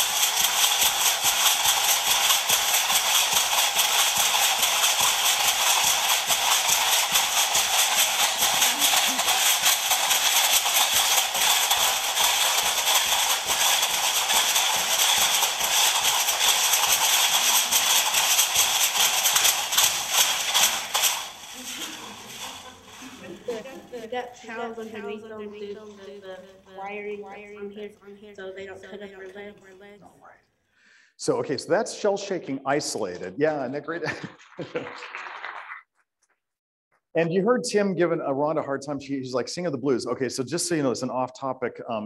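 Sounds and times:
shell leg rattles shaking: 0:00.0 - 0:29.9.

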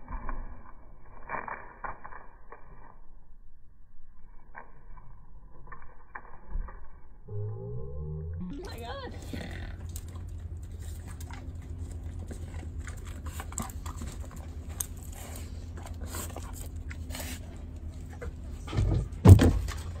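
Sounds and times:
low rumble: 0:03.0 - 0:18.7
dogs moving about: 0:09.4 - 0:20.0.

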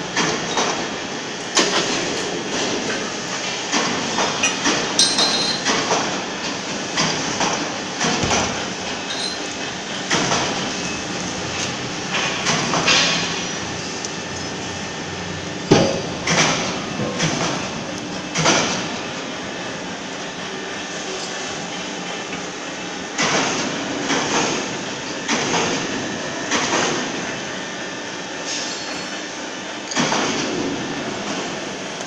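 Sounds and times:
steady machinery noise: 0:00.0 - 0:32.0
metallic clanks and knocks: 0:04.4 - 0:05.9.

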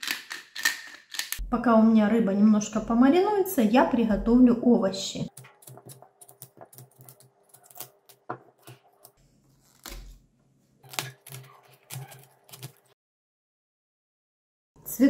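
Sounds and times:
knife cutting vegetables on board: 0:05.3 - 0:10.2, 0:10.8 - 0:12.9.

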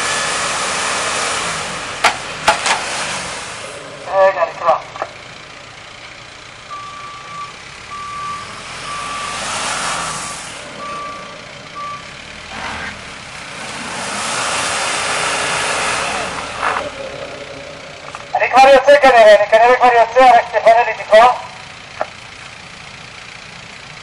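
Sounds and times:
truck reversing alarm beeping: 0:00.0 - 0:24.0
rushing noise: 0:08.3 - 0:21.6.

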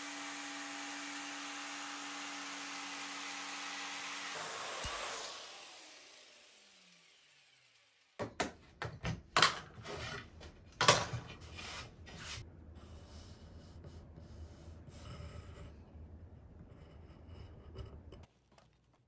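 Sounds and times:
jigsaw motor winding down: 0:00.0 - 0:08.2.

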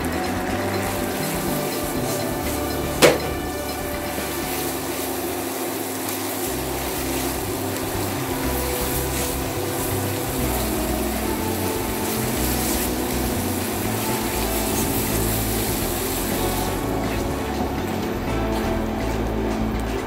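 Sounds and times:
background music with bass line: 0:00.0 - 0:05.7, 0:06.3 - 0:20.0
steady hissing noise: 0:00.0 - 0:20.0.

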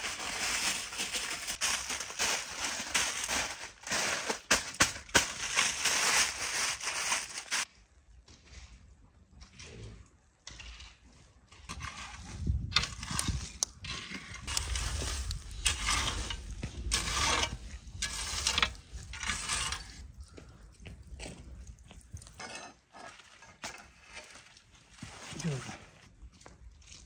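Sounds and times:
charcoal crackling: 0:00.0 - 0:07.7, 0:12.8 - 0:20.0
metal hoe scraping charcoal: 0:00.0 - 0:07.7, 0:09.4 - 0:20.0, 0:22.2 - 0:26.0.

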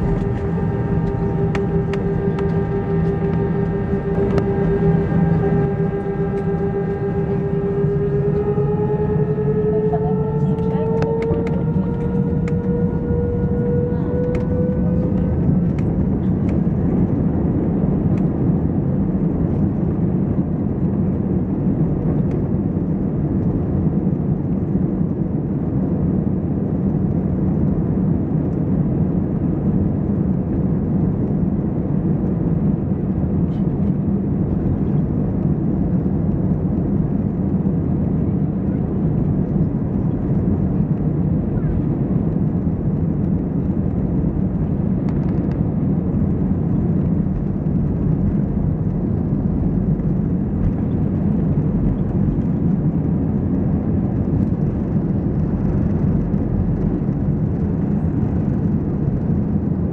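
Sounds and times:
faint rising whine: 0:00.0 - 0:19.3
jet engine cabin rumble: 0:00.0 - 0:59.9.

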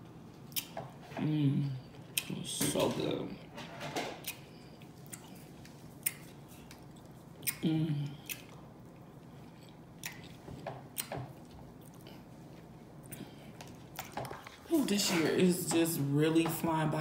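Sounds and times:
person chewing food: 0:00.2 - 0:02.4, 0:04.2 - 0:14.7
short hummed vocal sound: 0:07.5 - 0:08.4.

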